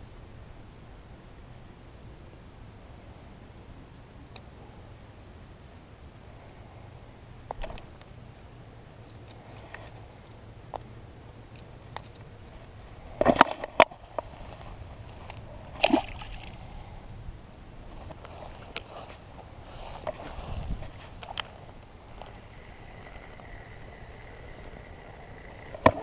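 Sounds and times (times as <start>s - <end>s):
fish handling clicks and rustles: 18.0s - 26.0s.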